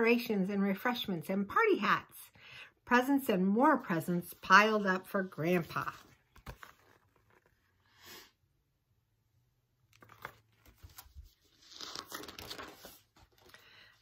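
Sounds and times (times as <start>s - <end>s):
page turning rustle: 5.4s - 7.8s, 9.8s - 14.0s
soft clicks of book handling: 6.0s - 7.6s.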